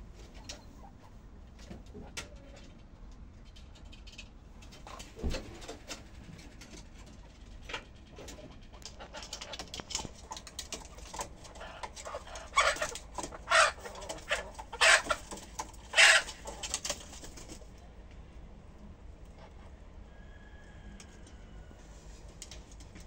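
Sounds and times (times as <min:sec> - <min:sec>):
chickens clucking: 0:00.2 - 0:02.8, 0:04.6 - 0:17.8
chicken squawks: 0:11.5 - 0:16.9.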